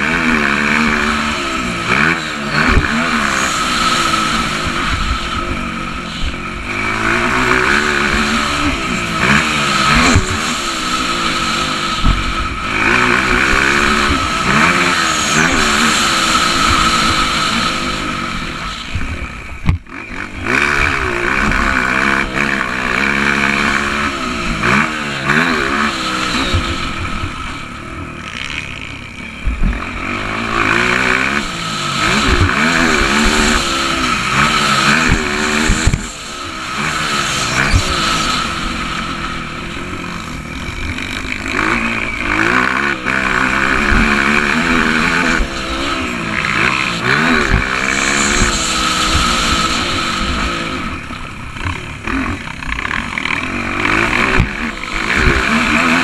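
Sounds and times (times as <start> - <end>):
dirt bike engine revving: 0.0 - 56.0
thumps: 19.6 - 19.9.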